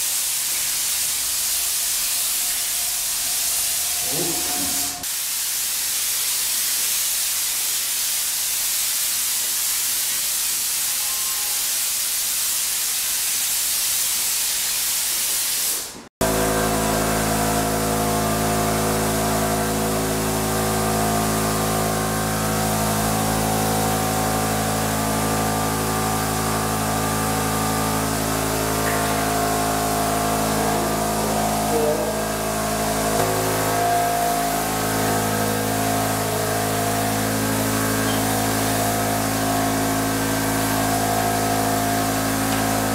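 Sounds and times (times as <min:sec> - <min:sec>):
spray gun hissing: 0:00.0 - 0:42.9
sprayer motor humming: 0:01.2 - 0:05.0, 0:16.2 - 0:42.9.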